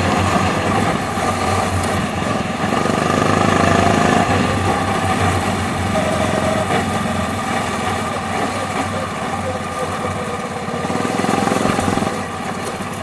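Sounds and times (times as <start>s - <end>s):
go-kart engine running: 0.0s - 13.0s.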